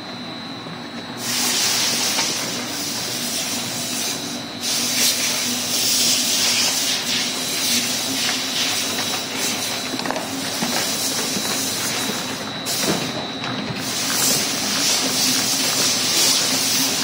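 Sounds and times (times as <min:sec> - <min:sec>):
low machine hum: 0:00.0 - 0:17.0
machine hissing rush: 0:01.2 - 0:09.7, 0:13.8 - 0:17.0.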